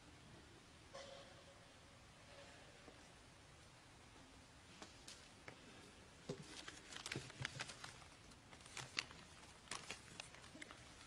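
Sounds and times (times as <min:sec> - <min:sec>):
faint clicks and rustles: 0:04.7 - 0:11.0.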